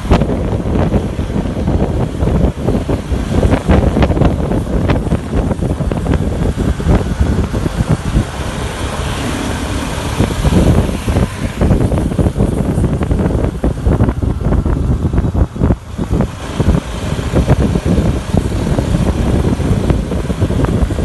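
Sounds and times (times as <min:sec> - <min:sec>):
motorcycle running: 0:00.0 - 0:21.0
wind buffeting microphone: 0:00.0 - 0:21.0.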